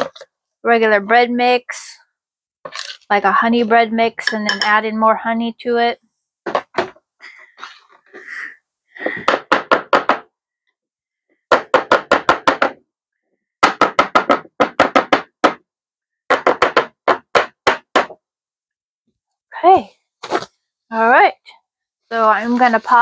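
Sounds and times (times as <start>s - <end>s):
glass containers knocking: 4.2s - 4.8s.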